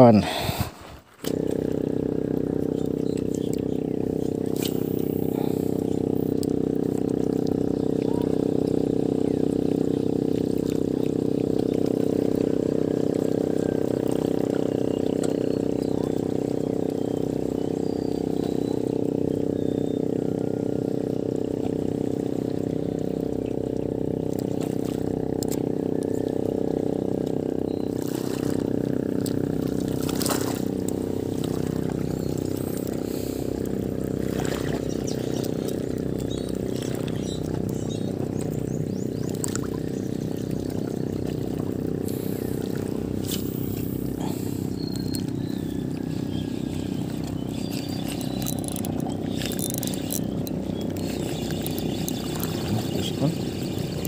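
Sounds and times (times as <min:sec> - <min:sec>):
water lapping against rocks: 0:00.2 - 0:54.0
low hum: 0:00.3 - 0:54.0
faint clicks: 0:47.7 - 0:52.2.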